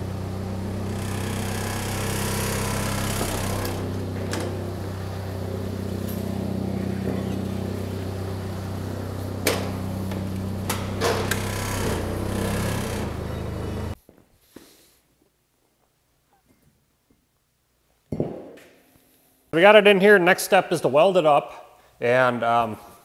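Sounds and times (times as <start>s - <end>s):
forklift engine idling: 0.0s - 14.0s.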